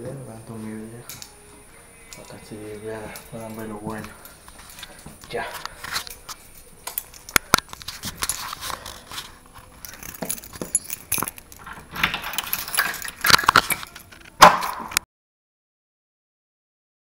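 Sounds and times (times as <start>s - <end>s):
keys jangling in door lock: 3.1s - 4.9s, 6.0s - 14.3s.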